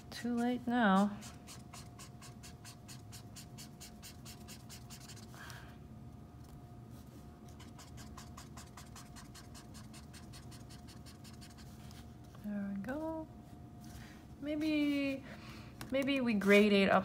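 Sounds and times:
marker scratching over paper: 1.1 - 5.4, 7.5 - 12.0.

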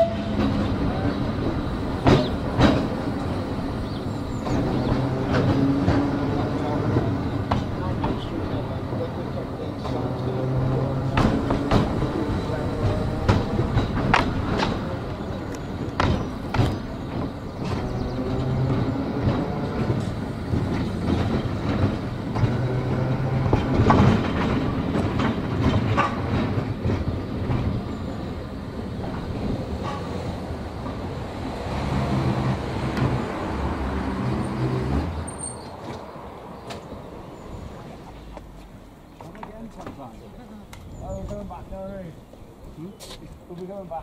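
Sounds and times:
tram rumbling with motor hum: 0.0 - 44.0
wheels clicking over rail joints: 0.0 - 44.0.

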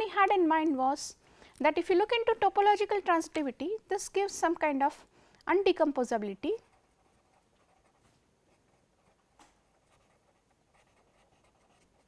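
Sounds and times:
pen scratching on paper: 6.5 - 12.0.

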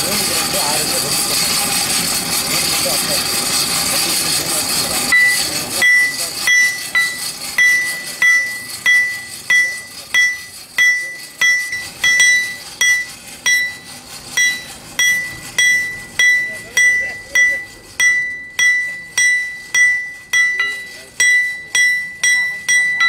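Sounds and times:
hammer ringing on steel anvil: 5.1 - 23.0.

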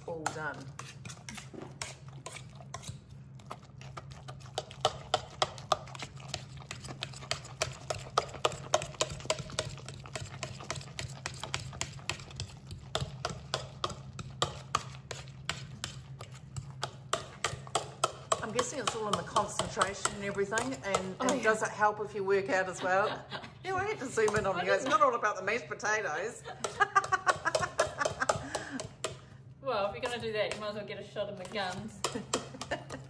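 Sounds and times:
potato masher knocking in a pot: 4.4 - 21.7, 26.6 - 29.3, 30.0 - 33.0.

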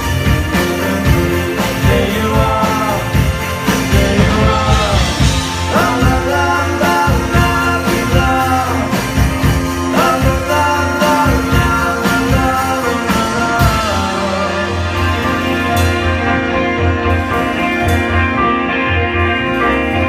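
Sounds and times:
man singing: 0.0 - 15.5
rock band playing: 0.0 - 20.0.

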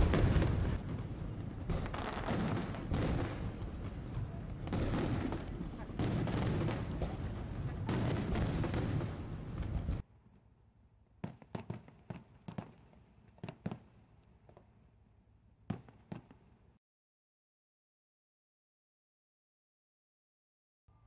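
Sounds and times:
firework pops and crackles: 0.0 - 10.0, 11.2 - 14.7, 15.7 - 16.5
fireworks booming and crackling: 0.0 - 10.0, 11.2 - 14.7, 15.7 - 16.5.

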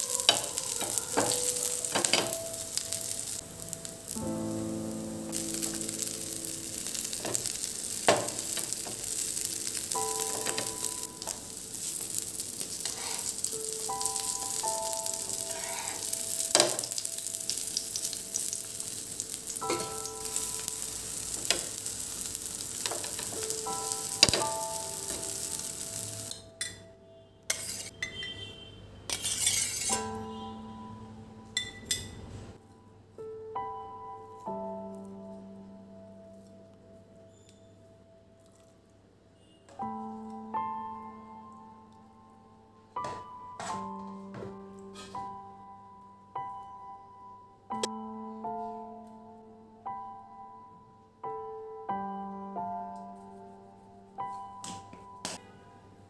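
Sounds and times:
patties sizzling in oil: 0.0 - 26.4, 27.5 - 27.9, 29.1 - 30.1
quiet background music: 0.0 - 28.1, 29.2 - 56.0.

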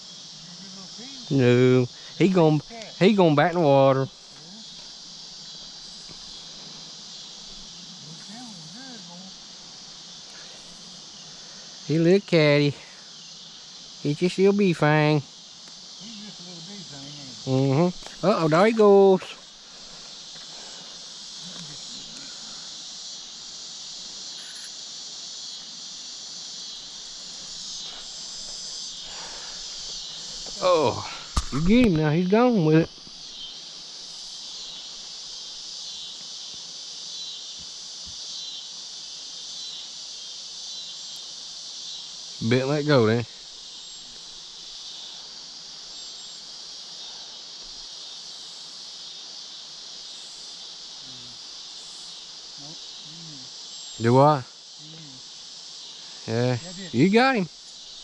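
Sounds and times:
crickets and insects chirping: 0.0 - 58.0.

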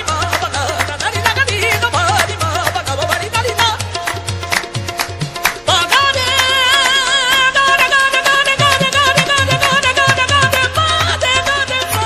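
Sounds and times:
harmonium notes: 0.0 - 12.0
person singing: 5.6 - 12.0
quick drum beat: 8.6 - 11.2.

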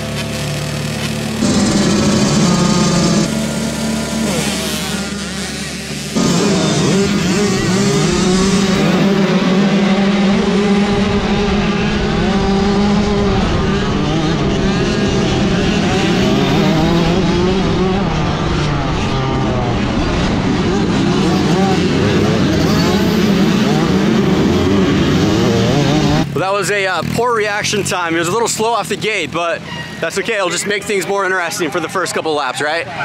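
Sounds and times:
motorbike engine at full throttle: 0.0 - 29.8
motocross bikes revving: 0.0 - 33.0.

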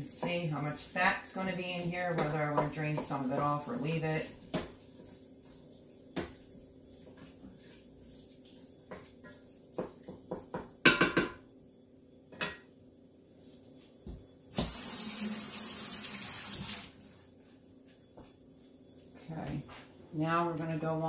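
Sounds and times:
kitchen knocks and clatters: 1.9 - 3.6, 8.9 - 11.5, 12.3 - 12.7
tap water running: 14.5 - 17.3.

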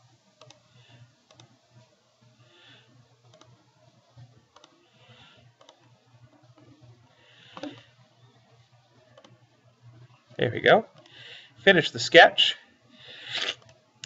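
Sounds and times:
faint low hum: 0.0 - 14.0
computer mouse clicks: 0.4 - 0.7, 1.3 - 1.6, 3.2 - 3.6, 4.2 - 7.9, 9.1 - 9.4, 10.9 - 11.2, 13.2 - 13.8.

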